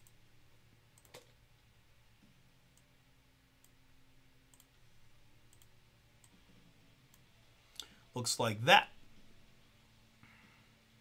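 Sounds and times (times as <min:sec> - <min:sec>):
low room hum: 0:00.0 - 0:11.0
computer clicks: 0:01.0 - 0:01.3, 0:04.5 - 0:04.8, 0:05.5 - 0:06.4.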